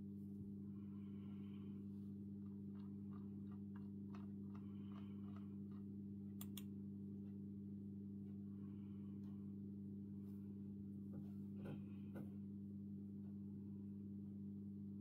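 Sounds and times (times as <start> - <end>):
steady low hum: 0.0 - 15.0
faint ticks: 2.8 - 6.7
laptop clicks: 6.4 - 6.7.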